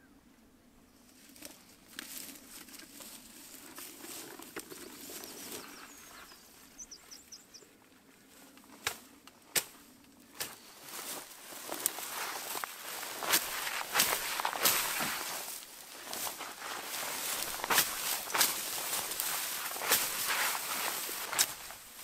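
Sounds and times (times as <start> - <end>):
dry grass and reeds rustling: 0.9 - 22.0
small bird chirping: 4.9 - 7.7
sharp snaps: 8.8 - 10.6.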